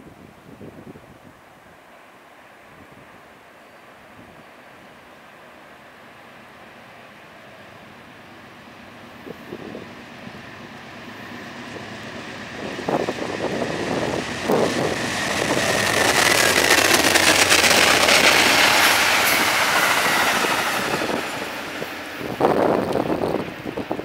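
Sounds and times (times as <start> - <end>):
wheel and rail noise: 3.8 - 24.0
passenger train passing: 3.9 - 24.0
wheel clacks: 14.2 - 19.3.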